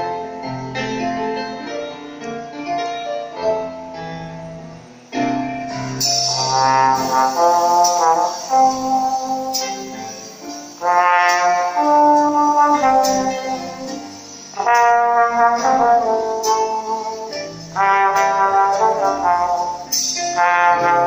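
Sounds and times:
small trombone slow melody: 5.7s - 21.0s.

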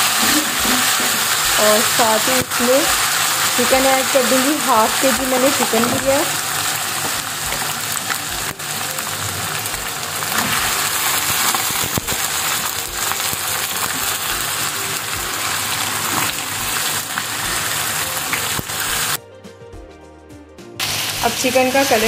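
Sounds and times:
ghee sizzling in a frying pan: 0.0s - 19.2s, 20.8s - 22.0s.

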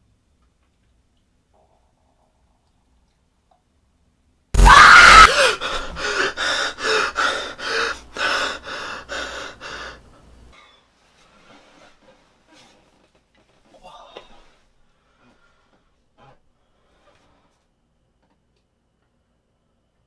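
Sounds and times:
man panting: 5.3s - 10.1s.

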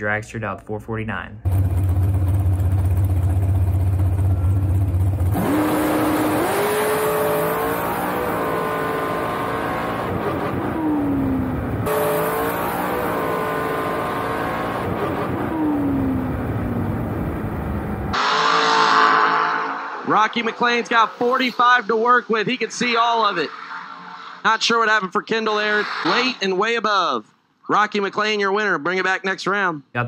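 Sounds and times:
dragster engine: 1.5s - 24.0s
wind rush: 20.0s - 26.7s.

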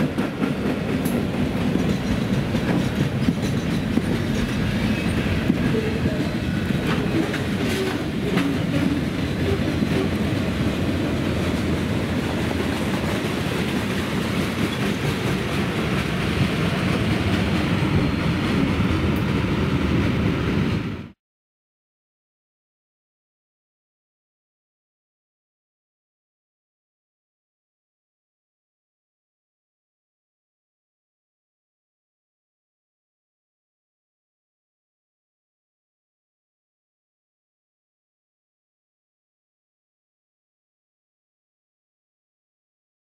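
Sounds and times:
steel wheels running on rails: 0.0s - 20.8s.

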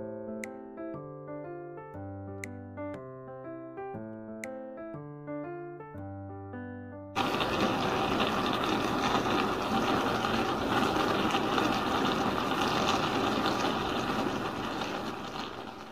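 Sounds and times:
broth bubbling: 7.2s - 15.9s
meat sizzling in a pot: 7.2s - 15.9s.

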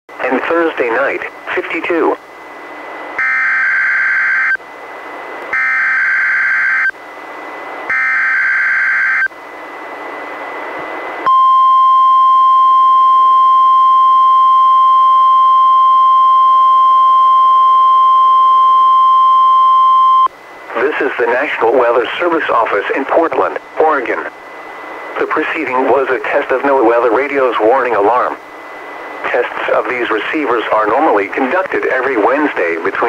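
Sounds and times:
radio hiss: 0.2s - 2.2s, 20.6s - 33.0s
single-tone warning alarm: 3.2s - 4.6s, 5.5s - 7.0s, 7.9s - 9.3s.

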